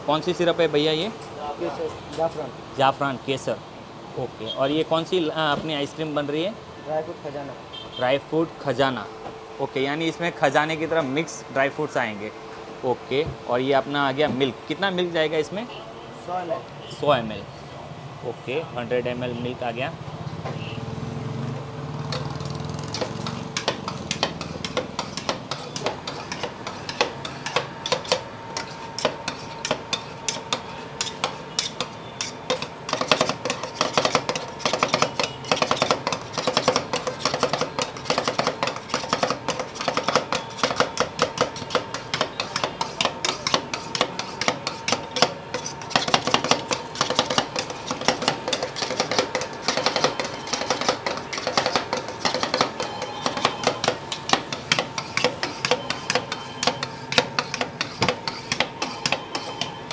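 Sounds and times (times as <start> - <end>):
metal spatulas clacking on metal: 22.9 - 59.9.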